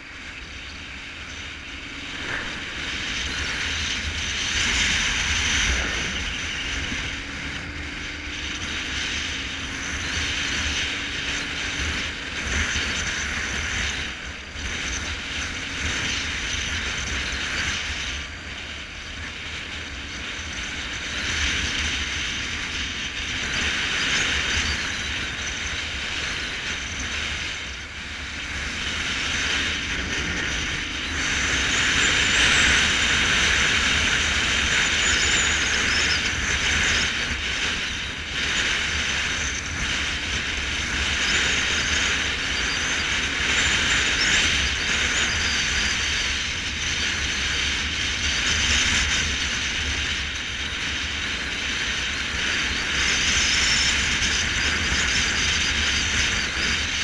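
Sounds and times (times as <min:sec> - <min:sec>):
faint motorcycle engine: 0:00.0 - 0:57.0
wind and road noise: 0:00.0 - 0:57.0.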